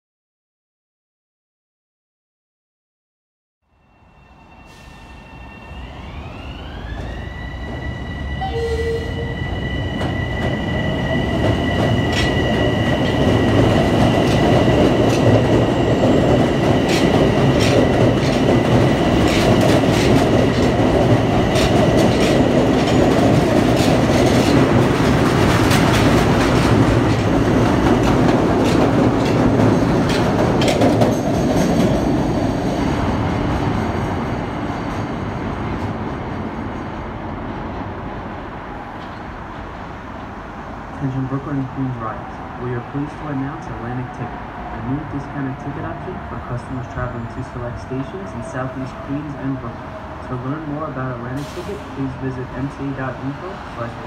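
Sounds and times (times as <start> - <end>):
train rumble: 4.5 - 54.0.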